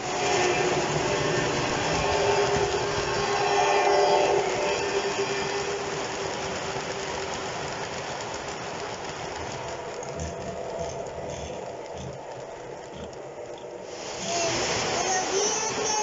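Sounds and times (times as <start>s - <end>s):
model train wheels rumbling on rail: 0.0s - 16.0s.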